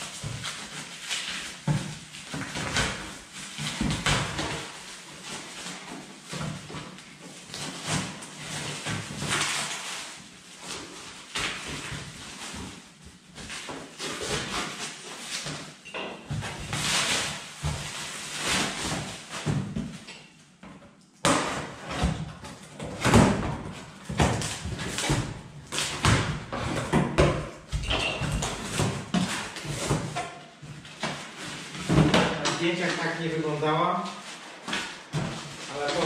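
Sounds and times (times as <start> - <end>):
packaging rustling and tearing: 0.0 - 20.0, 34.0 - 36.0
box knocking and scraping on floor: 21.3 - 32.6.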